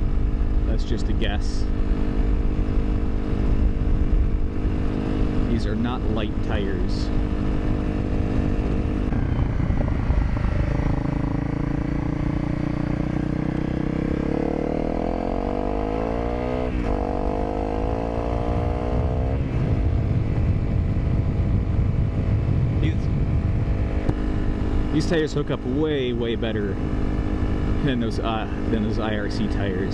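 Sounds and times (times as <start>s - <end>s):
motorcycle engine accelerating: 0.0s - 29.9s
road rumble: 0.0s - 29.9s.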